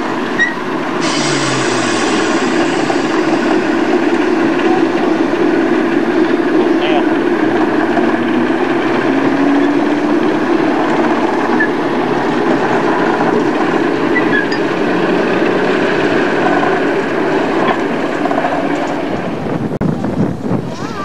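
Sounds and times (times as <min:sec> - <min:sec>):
diesel locomotive engine running: 0:00.0 - 0:19.8.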